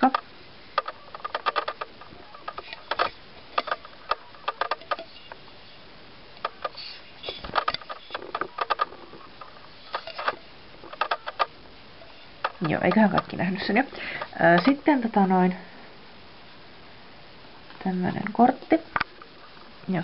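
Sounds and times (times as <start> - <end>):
small plastic clicks and taps: 6.4 - 11.5.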